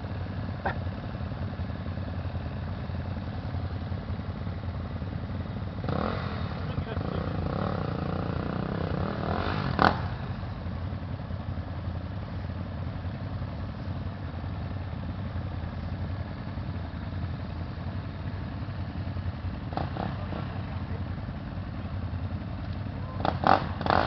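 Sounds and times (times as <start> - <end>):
dirt bike engine revving and idling: 0.0 - 24.0.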